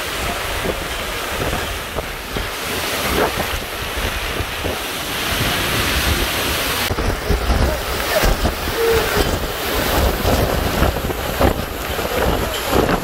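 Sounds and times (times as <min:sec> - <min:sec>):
hurricane winds: 0:00.0 - 0:13.0
wind buffeting microphone: 0:00.0 - 0:13.0
wind-driven rain: 0:00.0 - 0:13.0.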